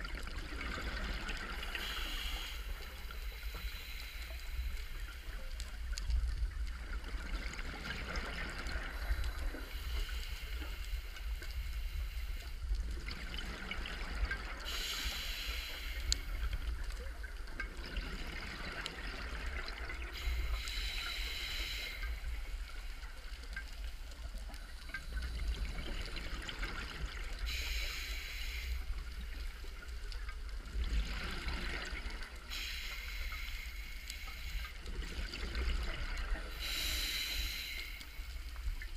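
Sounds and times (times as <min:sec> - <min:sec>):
regulator hiss and bubbles: 0:00.0 - 0:38.9.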